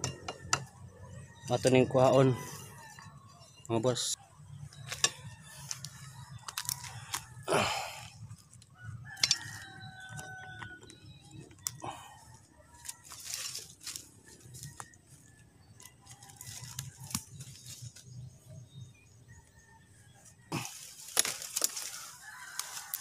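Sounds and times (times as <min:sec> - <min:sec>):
knocks and rustling of brush: 0:12.8 - 0:15.2, 0:20.6 - 0:23.0
machete cracking into branch: 0:21.0 - 0:21.9.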